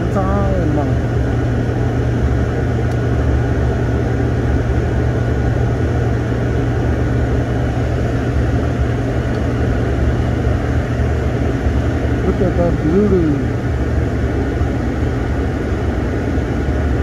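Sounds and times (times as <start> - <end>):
airliner cabin engine drone: 0.0 - 17.0.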